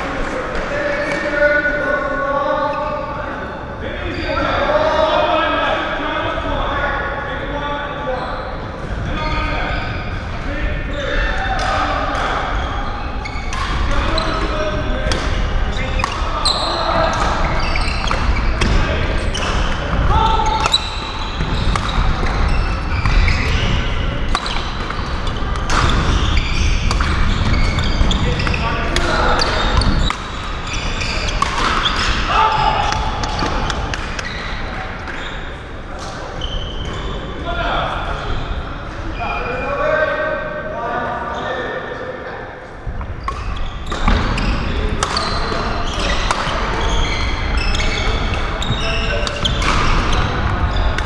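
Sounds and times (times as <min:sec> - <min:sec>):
shoes squeaking on floor: 0:08.1 - 0:10.3, 0:10.9 - 0:37.5, 0:43.0 - 0:51.0
racket hitting shuttlecock: 0:20.6 - 0:22.4, 0:29.0 - 0:30.5, 0:31.2 - 0:32.3, 0:45.0 - 0:46.8.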